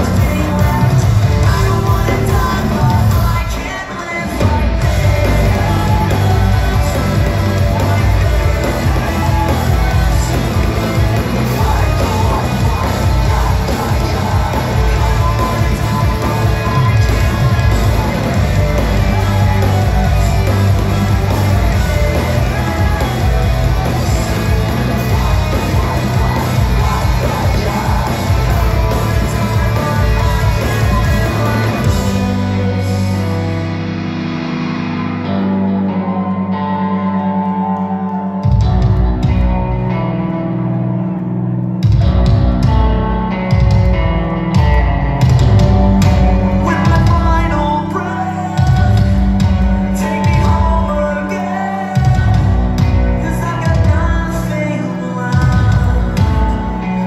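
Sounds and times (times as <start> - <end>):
person singing and shouting: 0.0 - 33.3
rock band playing live: 0.0 - 57.0.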